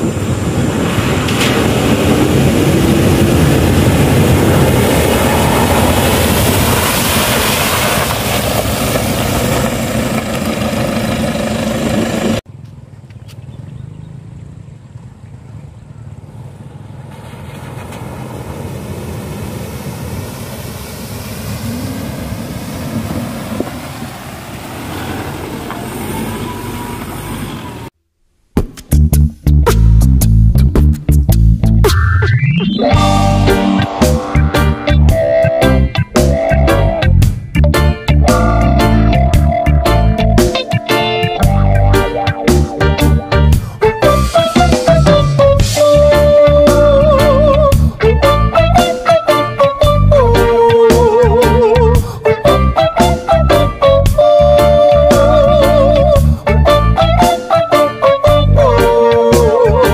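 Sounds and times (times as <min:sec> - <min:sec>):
vehicle engine driving through water: 0:01.1 - 0:12.4, 0:13.6 - 0:27.9
guitar rock music: 0:28.9 - 0:59.9.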